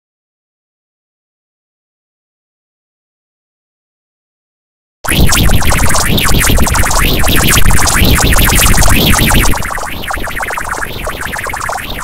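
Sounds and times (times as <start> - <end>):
distorted synthesizer music: 5.1 - 12.0.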